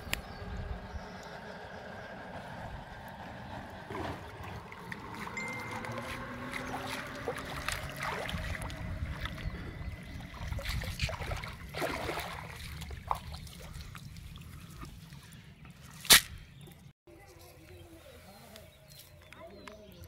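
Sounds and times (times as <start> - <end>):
river water splashing: 0.0 - 15.3.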